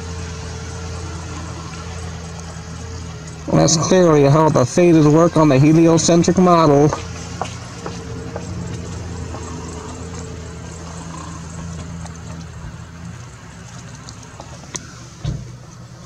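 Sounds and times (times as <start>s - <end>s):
low mechanical hum: 0.0s - 16.0s
faint clicks: 9.9s - 15.0s.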